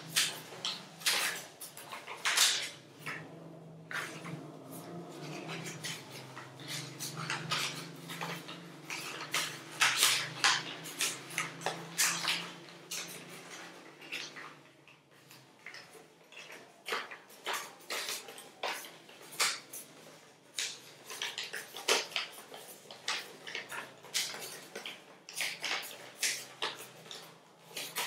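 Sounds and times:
low steady hum: 0.0s - 16.1s
paper folding and crackling: 0.0s - 28.0s.

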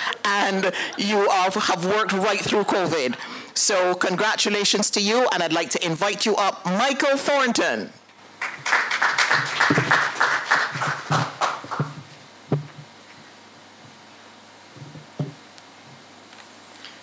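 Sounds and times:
audience applauding: 8.4s - 12.0s
knocks: 11.1s - 12.9s, 14.8s - 15.4s.

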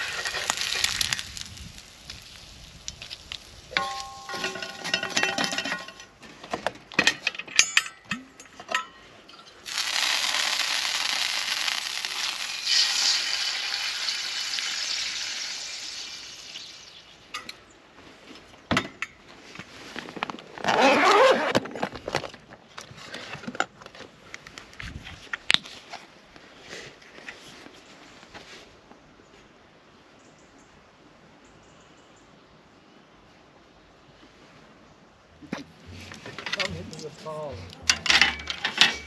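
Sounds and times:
food sizzling in a pan: 0.0s - 4.0s, 9.6s - 17.1s
cooking utensils clinking: 3.7s - 6.2s, 37.7s - 39.0s.

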